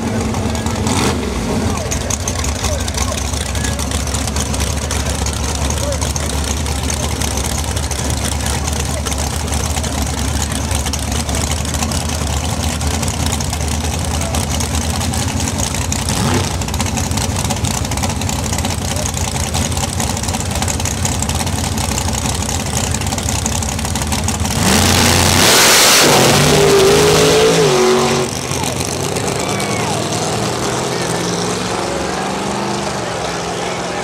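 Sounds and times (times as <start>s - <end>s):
engine revving: 0.0s - 18.0s, 24.2s - 34.0s
full-throttle car launch: 0.0s - 34.0s
race car engines idling loudly: 0.0s - 34.0s.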